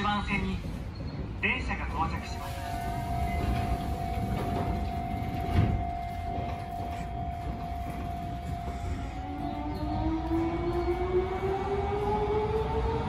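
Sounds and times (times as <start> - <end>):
electric train whine: 2.1 - 13.0
train doors shutting thud: 2.6 - 9.0
rising traction motor whine: 4.8 - 13.0.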